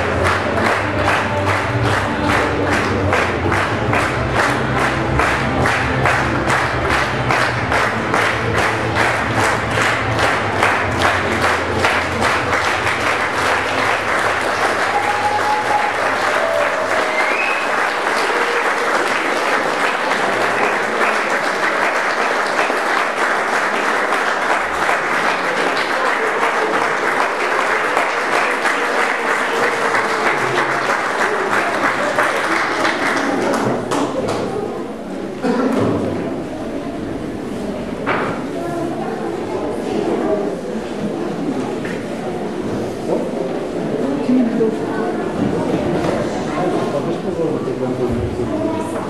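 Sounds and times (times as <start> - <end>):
audience applauding: 0.0 - 34.6.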